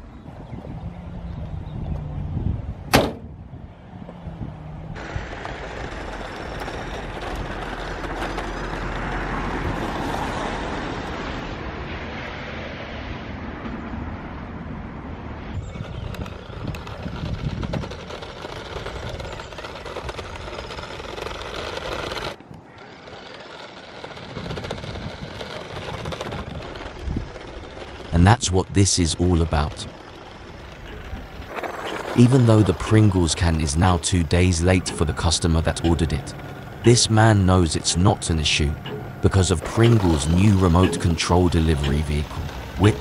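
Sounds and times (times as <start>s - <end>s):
toy car motor and tyres rushing: 4.9s - 11.6s, 15.4s - 43.0s.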